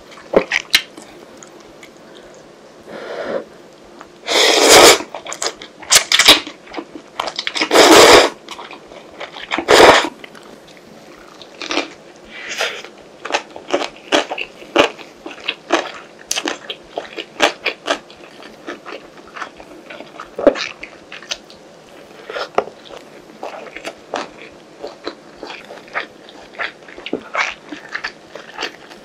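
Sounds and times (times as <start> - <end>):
slurping noodles: 4.3 - 5.1, 7.6 - 8.4
wet chewing: 8.5 - 29.0.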